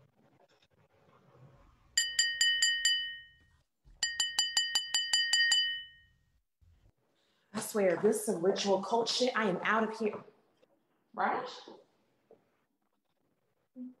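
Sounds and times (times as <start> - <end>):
wine glass clinking: 2.0 - 3.4, 4.0 - 6.1.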